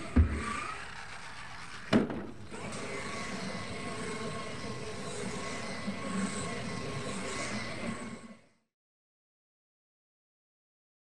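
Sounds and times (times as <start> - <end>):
toy truck landing thump: 1.9 - 2.4.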